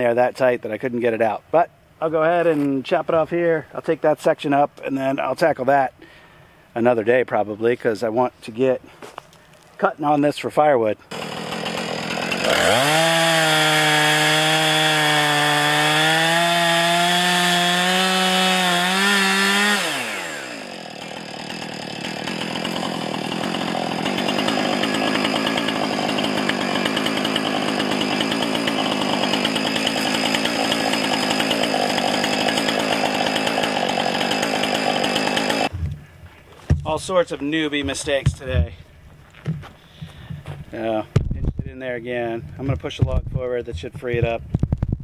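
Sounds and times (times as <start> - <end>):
chainsaw cutting log: 11.1 - 36.0, 36.7 - 38.8.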